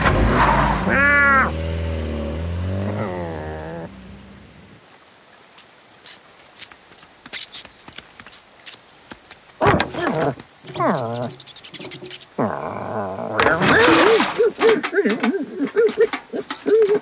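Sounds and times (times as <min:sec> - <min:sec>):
low engine hum: 0:00.0 - 0:05.0
faint rain: 0:00.0 - 0:17.0
high mouse squeaks: 0:05.6 - 0:08.8, 0:09.9 - 0:12.4, 0:15.8 - 0:17.0.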